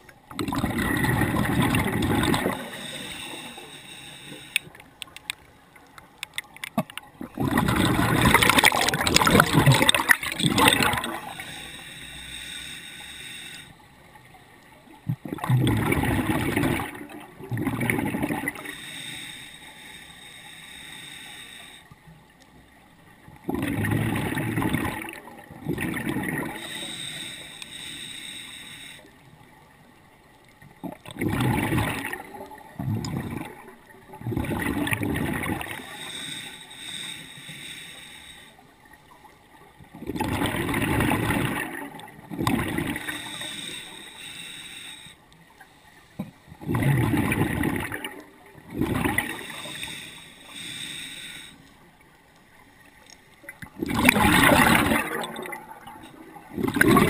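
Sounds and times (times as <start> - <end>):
exhaled bubbles gurgling underwater: 0.0 - 19.9, 21.7 - 45.1, 46.2 - 57.0
regulator hiss: 2.7 - 4.7, 11.2 - 13.8, 18.6 - 22.0, 26.6 - 29.1, 35.8 - 38.6, 43.0 - 46.2, 49.3 - 51.8.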